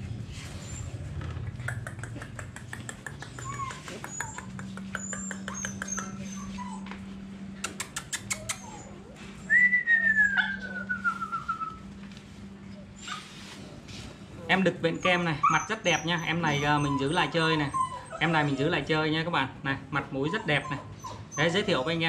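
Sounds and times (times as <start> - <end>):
person clicking tongue: 1.6 - 6.1, 7.6 - 8.7
small short squeaks: 7.7 - 9.0
descending whistle: 9.5 - 11.9.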